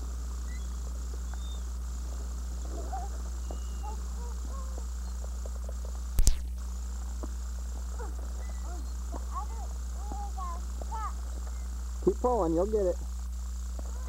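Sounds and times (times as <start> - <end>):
low electrical hum: 0.0 - 14.0
sharp click: 6.2 - 6.6.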